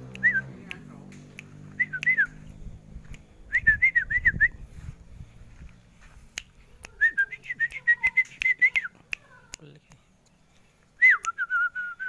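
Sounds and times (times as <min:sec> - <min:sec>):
sharp clicks: 0:00.0 - 0:03.3, 0:06.3 - 0:11.4.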